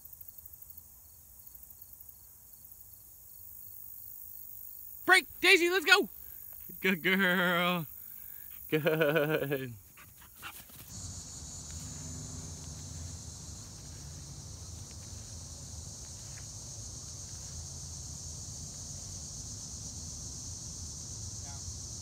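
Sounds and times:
crickets chirping: 0:00.0 - 0:22.0
low steady rumble: 0:10.9 - 0:22.0.

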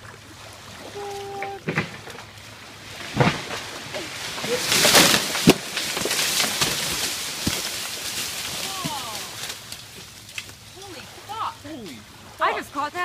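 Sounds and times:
tree branch cracking: 0:01.3 - 0:10.8
branch crashing through leaves: 0:01.4 - 0:10.7
branch hitting ground knock: 0:01.5 - 0:02.2, 0:03.0 - 0:09.8.

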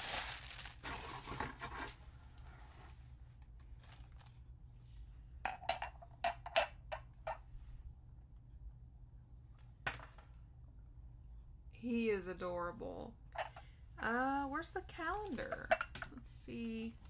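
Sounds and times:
plastic wrapping crinkling: 0:00.0 - 0:01.4, 0:03.7 - 0:04.4
ceramic pieces clinking: 0:05.5 - 0:07.4.

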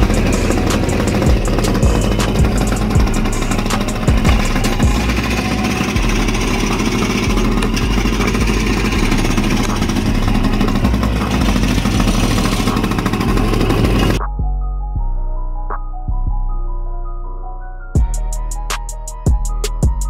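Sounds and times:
two-stroke kart engine buzzing: 0:00.0 - 0:14.2.

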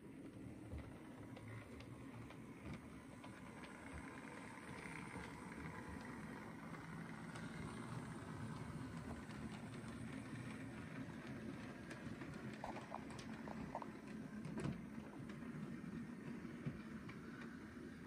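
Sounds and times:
model train rumbling on track: 0:00.0 - 0:18.0.

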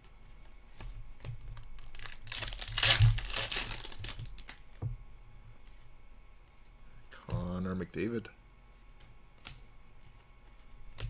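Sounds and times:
foil wrapper tearing and crinkling: 0:01.6 - 0:04.6.

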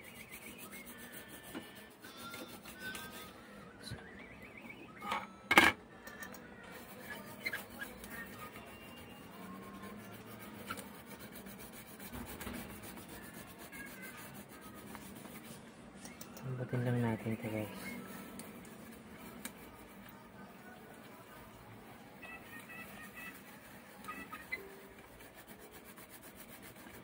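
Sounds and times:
toothbrush scrubbing circuit board: 0:00.0 - 0:03.2, 0:06.8 - 0:15.6, 0:16.8 - 0:20.4, 0:22.1 - 0:27.0.

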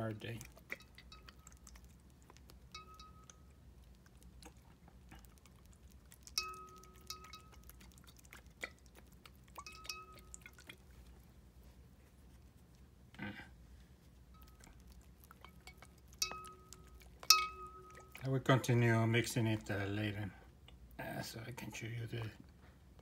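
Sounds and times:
faint clicks and drips: 0:00.0 - 0:11.3, 0:14.0 - 0:23.0
pipette tapping ringing glass: 0:00.8 - 0:01.6, 0:02.7 - 0:03.5, 0:06.4 - 0:07.7, 0:09.6 - 0:10.4, 0:15.7 - 0:18.2.

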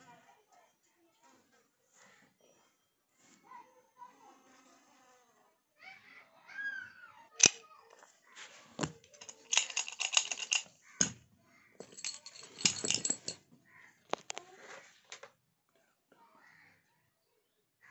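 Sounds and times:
keys jangling: 0:07.4 - 0:07.6, 0:09.0 - 0:11.2, 0:11.8 - 0:13.4.

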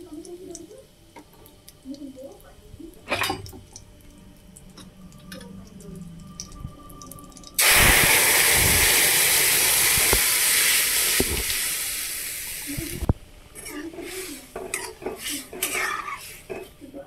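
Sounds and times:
seeds crackling in hot oil: 0:00.0 - 0:17.0
liquid poured into hot pan: 0:06.1 - 0:12.9
loud hiss and sizzle of steam: 0:07.6 - 0:13.1, 0:14.0 - 0:16.5.

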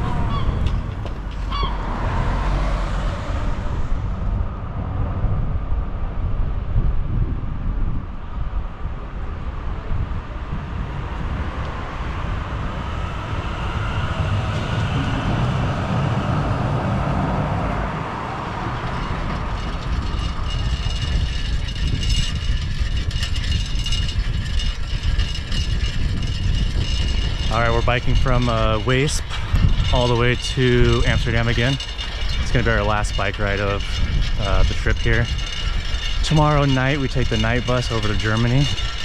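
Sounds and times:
train clicking and rattling: 0:00.0 - 0:01.7, 0:18.1 - 0:39.0
train rumbling on track: 0:00.0 - 0:39.0.

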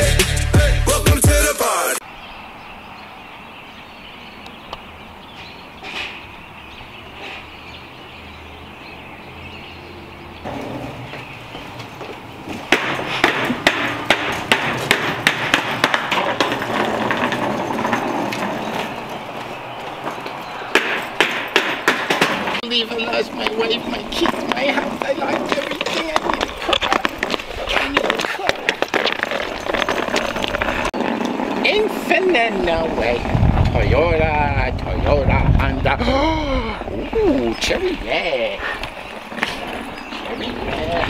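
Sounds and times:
outdoor background: 0:00.0 - 0:41.0
suitcase bumping down stairs: 0:10.4 - 0:22.6
footsteps: 0:10.4 - 0:33.8, 0:37.3 - 0:41.0.

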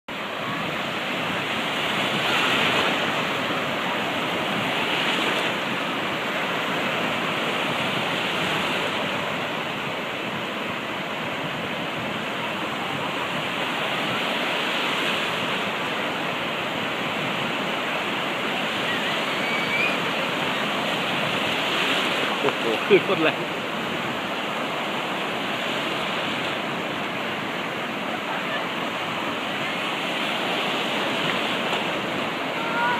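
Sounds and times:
waves breaking on beach: 0:00.1 - 0:32.9.

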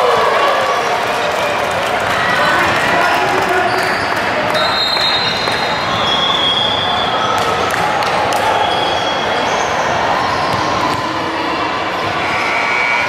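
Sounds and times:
hubbub of voices: 0:00.0 - 0:13.0.

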